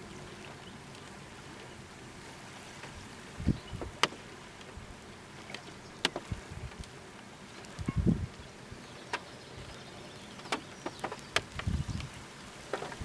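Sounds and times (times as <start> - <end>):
wind and choppy water: 0.0 - 13.0
wind buffeting microphone: 2.9 - 5.0, 6.0 - 7.0, 7.6 - 13.0.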